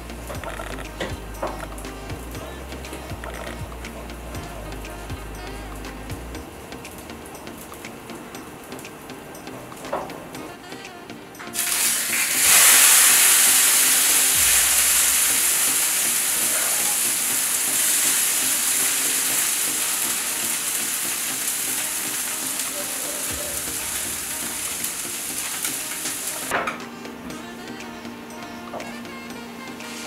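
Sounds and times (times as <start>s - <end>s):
buns sizzling on a griddle: 11.6s - 26.5s.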